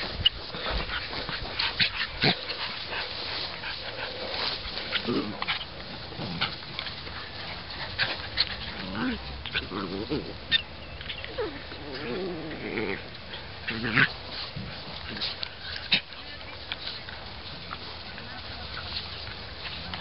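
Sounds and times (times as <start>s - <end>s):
puppies growling: 0.0s - 16.2s, 17.7s - 20.0s
puppies yipping: 10.4s - 12.0s.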